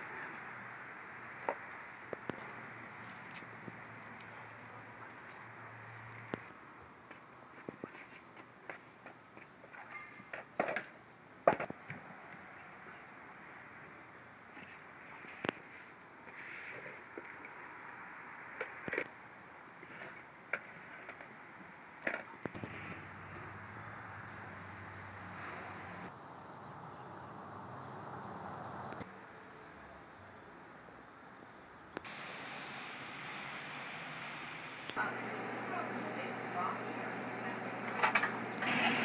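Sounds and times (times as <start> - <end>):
steady hiss: 32.0 - 36.7.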